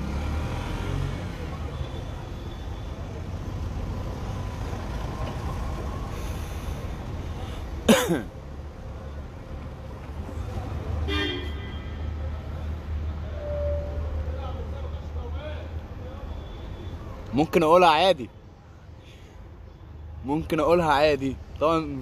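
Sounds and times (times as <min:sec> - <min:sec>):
street traffic rumble: 0:00.0 - 0:22.0.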